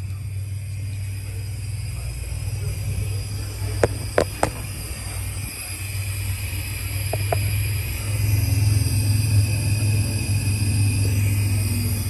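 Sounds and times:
truck engine idling: 0.0 - 12.0.

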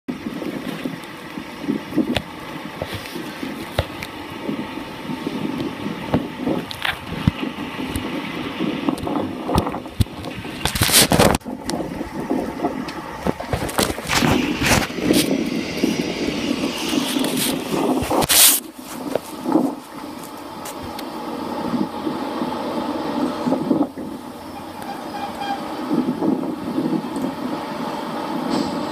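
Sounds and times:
diesel locomotive engine: 0.1 - 28.9
loud scraping noises: 9.1 - 20.8, 24.5 - 26.9.

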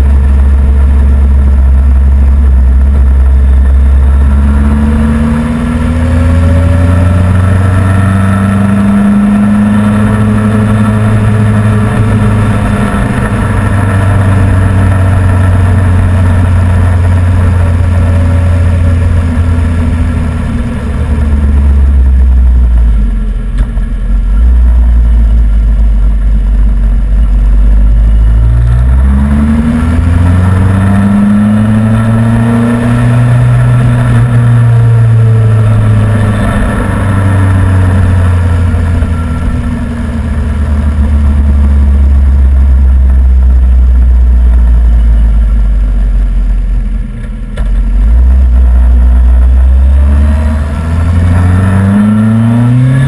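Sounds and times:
motorcycle engine running: 0.0 - 53.0
road noise: 0.0 - 53.0.

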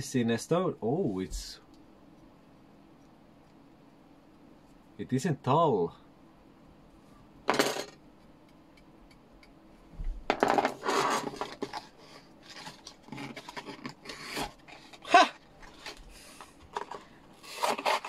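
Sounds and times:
knife rasping through cardboard: 17.4 - 18.0.

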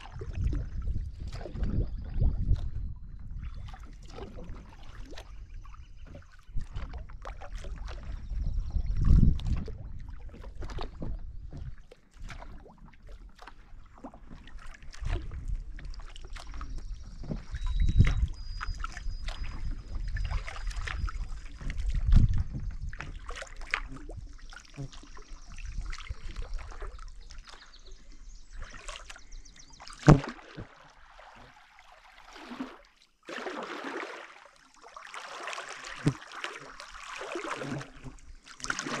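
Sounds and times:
paddle dipping in water: 0.0 - 39.0
water dripping off paddle: 9.0 - 39.0.

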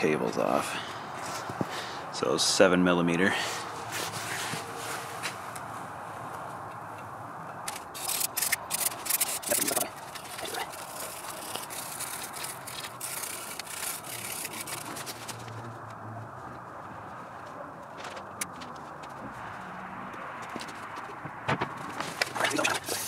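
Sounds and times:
nylon brush scrubbing metal: 8.0 - 15.3, 22.4 - 23.0.

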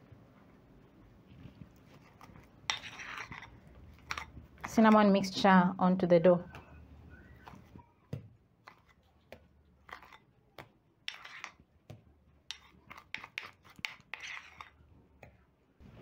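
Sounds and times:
metal spoon scraping a bowl: 2.0 - 5.1, 9.8 - 10.2, 11.1 - 11.6, 12.5 - 14.8.

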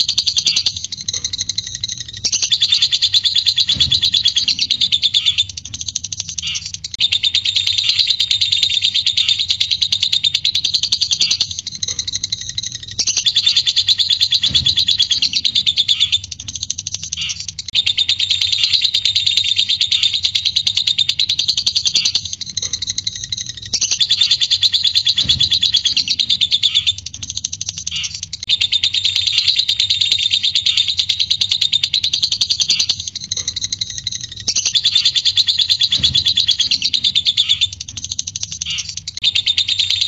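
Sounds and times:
bird rattling trill: 0.0 - 40.0.

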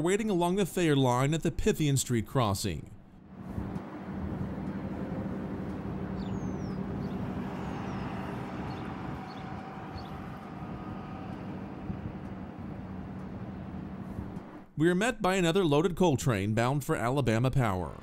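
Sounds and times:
diesel locomotive engine drone: 3.2 - 14.8.

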